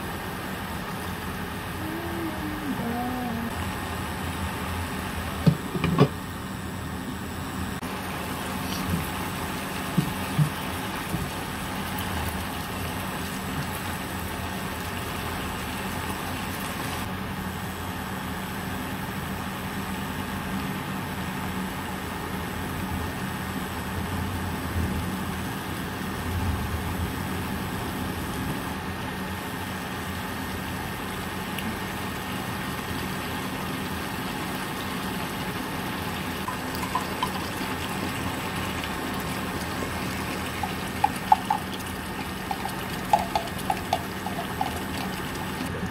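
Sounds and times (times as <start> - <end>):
induction cooker humming: 0.0 - 45.9
broth simmering in a pan: 7.8 - 17.1, 29.1 - 45.8.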